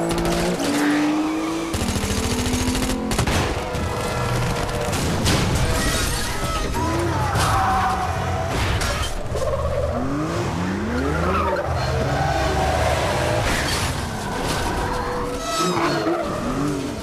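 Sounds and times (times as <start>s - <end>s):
car engine revving: 0.0s - 5.0s
tyres skidding: 0.0s - 17.0s.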